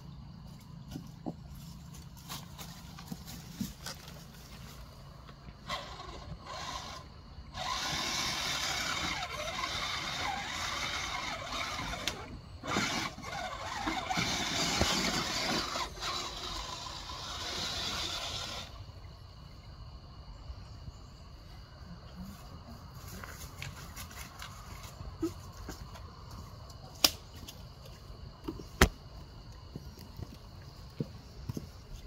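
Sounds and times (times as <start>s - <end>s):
electric motor and gears whining: 0.7s - 19.0s.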